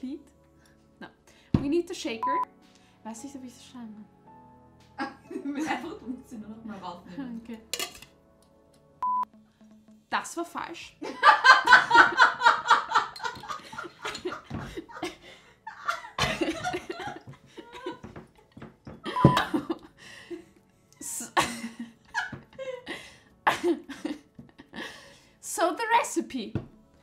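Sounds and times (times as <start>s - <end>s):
woman laughing: 11.0s - 19.9s, 21.0s - 24.8s.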